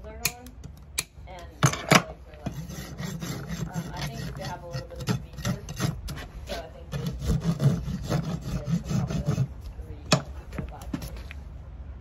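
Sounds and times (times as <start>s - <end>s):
rasp filing hoof: 2.4s - 9.7s.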